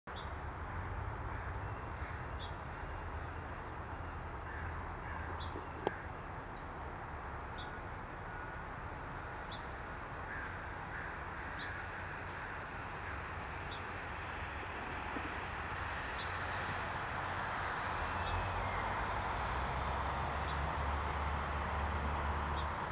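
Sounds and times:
faint caw-like bird calls: 1.3 - 6.2, 7.6 - 16.8.

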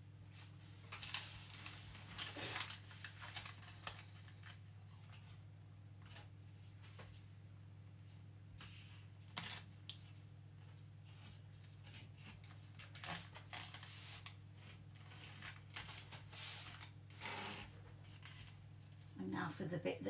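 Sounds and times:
foil crinkling: 0.3 - 5.4, 8.6 - 18.7.

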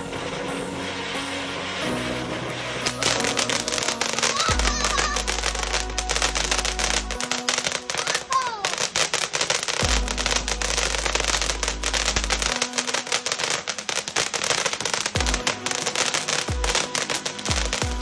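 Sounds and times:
music with deep bass: 0.0 - 7.7, 9.8 - 12.9, 15.2 - 18.0
firework fountain crackling: 0.0 - 18.0.

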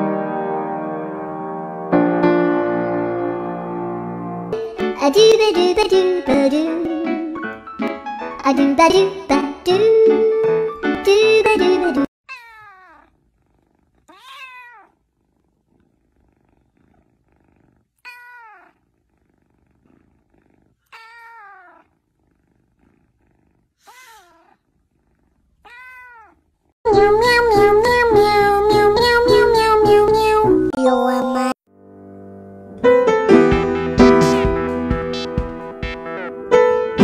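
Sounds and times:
kitten meowing: 12.3 - 13.1, 14.0 - 15.0, 18.0 - 18.8, 20.8 - 21.9, 23.8 - 24.6, 25.6 - 26.4
loud music with steady beat: 33.3 - 36.1.

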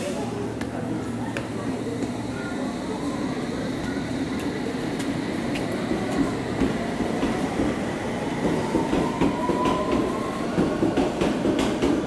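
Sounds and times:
train wheels clicking over rail joints: 8.4 - 12.0.

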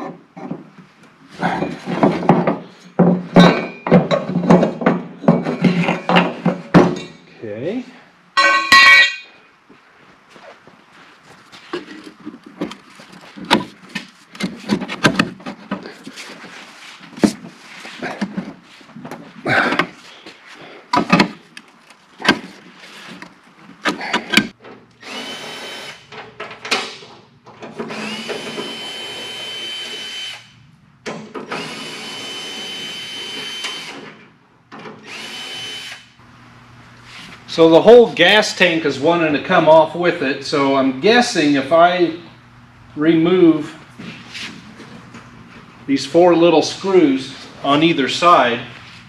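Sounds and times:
metal clanks: 1.5 - 7.3, 8.4 - 9.4
cordless drill whining: 25.0 - 26.0, 27.9 - 30.5, 31.5 - 34.0, 35.0 - 36.1.

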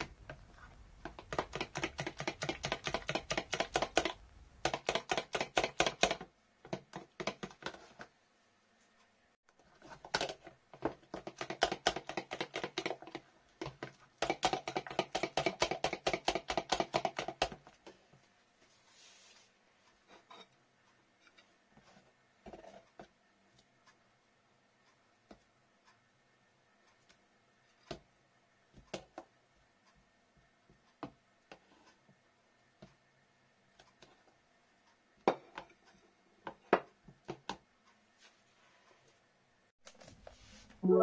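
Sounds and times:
spoon beating batter in container: 0.0 - 8.1, 9.6 - 18.0.

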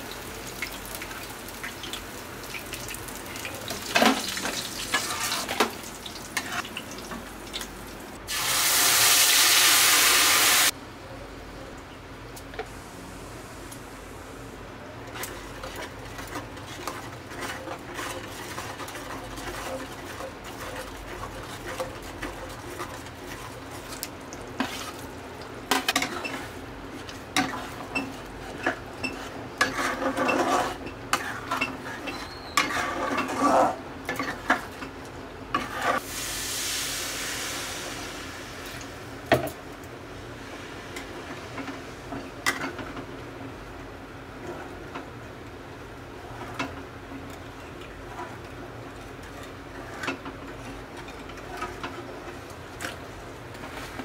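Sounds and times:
light sizzle of oil: 0.0 - 10.8, 12.8 - 43.3, 44.4 - 54.0
metal spatula scraping a pan: 4.9 - 5.6, 15.1 - 24.0, 27.4 - 34.7, 35.5 - 36.0, 49.2 - 52.0
water hissing in hot pan: 8.2 - 10.7, 36.0 - 38.8.

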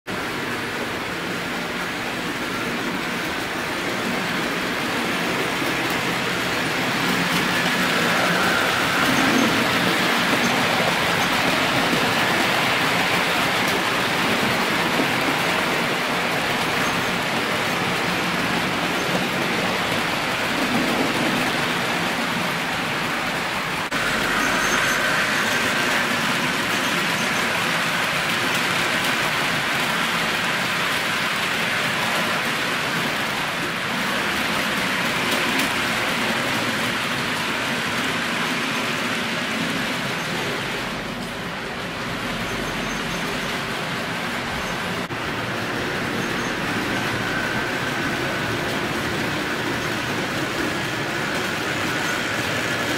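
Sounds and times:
model train wheels rattling on rails: 0.1 - 52.9.

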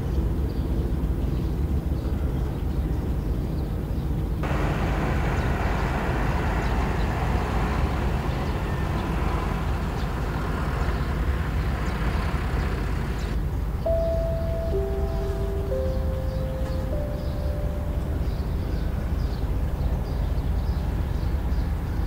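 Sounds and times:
hissy noise: 4.4 - 10.8
tractor engine droning: 4.4 - 21.8.

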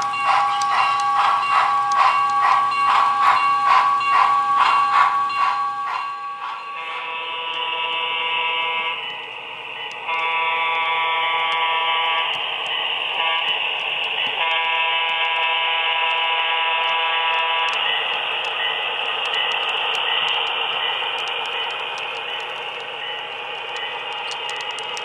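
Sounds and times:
light ticking: 0.0 - 5.5, 9.8 - 10.3, 17.7 - 25.0
air horn blasts: 10.1 - 12.3, 14.4 - 17.7.

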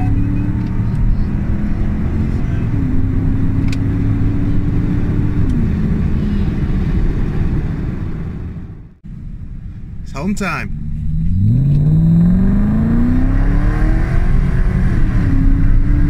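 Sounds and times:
car engine droning in cabin: 0.0 - 16.0.

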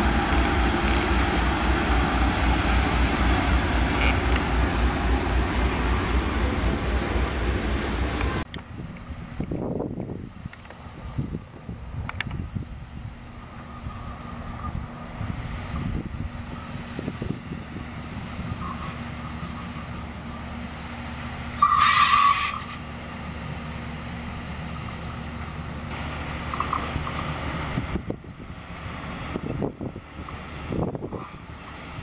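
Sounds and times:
diesel engine running: 10.8 - 21.8, 22.5 - 32.0.

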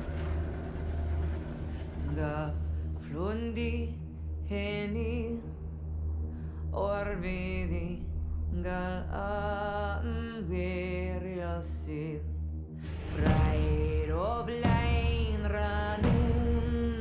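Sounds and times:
steady low drone: 0.0 - 17.0
voice chanting: 6.7 - 17.0.

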